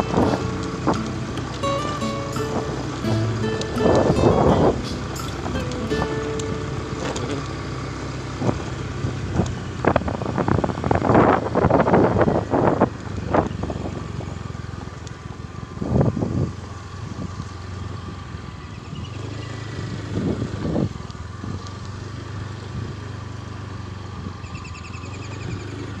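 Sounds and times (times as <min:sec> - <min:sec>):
wind buffeting microphone: 0:00.0 - 0:01.7, 0:08.3 - 0:14.4
motorcycle engine running: 0:00.0 - 0:26.0.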